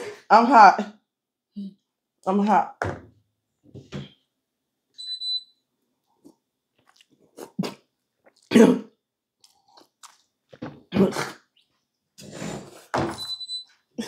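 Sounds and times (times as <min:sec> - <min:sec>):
person gulping and chewing: 0:06.1 - 0:11.8.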